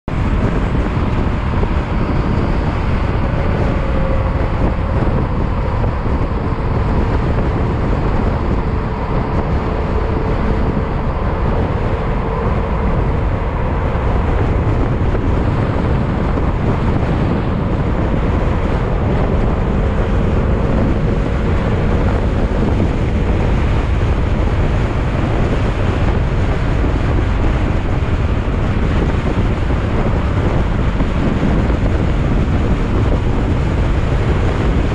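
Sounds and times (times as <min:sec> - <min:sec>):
wind noise on microphone: 0:00.0 - 0:34.9.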